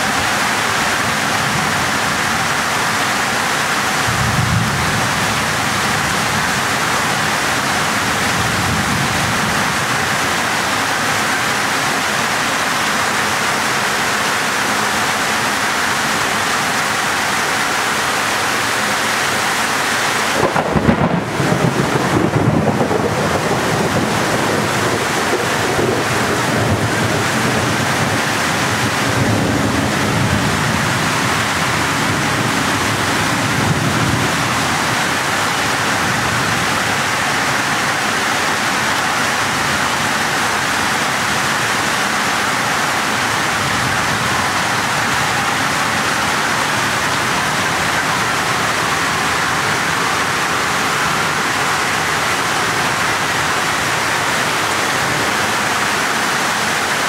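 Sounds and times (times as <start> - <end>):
floodwater rushing: 0.0 - 57.0
heavy rain pouring: 0.0 - 57.0.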